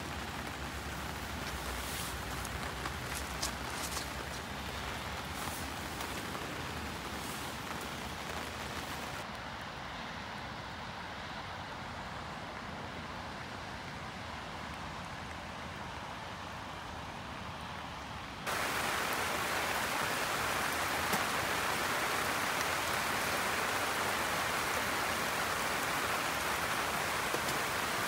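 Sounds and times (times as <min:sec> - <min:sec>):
close raindrops tapping: 0:00.0 - 0:09.2, 0:18.5 - 0:28.0
steady rain falling: 0:00.0 - 0:28.0.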